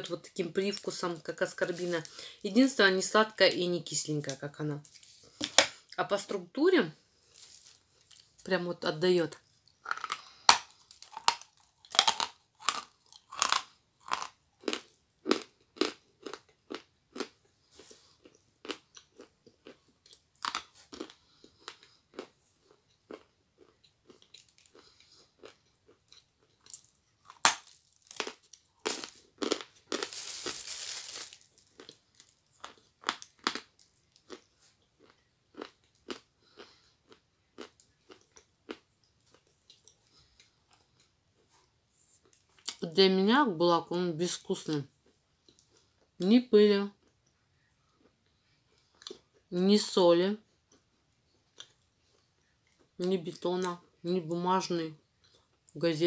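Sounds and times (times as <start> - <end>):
crunching and chewing chalk: 9.3 - 42.8.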